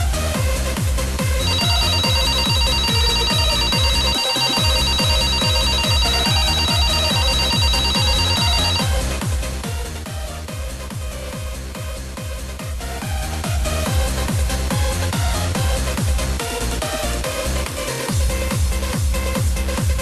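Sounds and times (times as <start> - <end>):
techno music with kick drum: 0.0 - 20.0
telephone ringing: 1.4 - 9.2.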